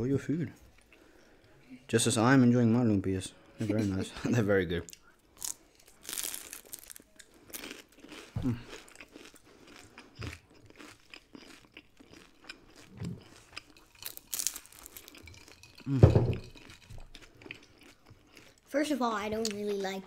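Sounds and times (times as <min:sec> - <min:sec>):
crunching and chewing spring roll: 0:05.4 - 0:18.7.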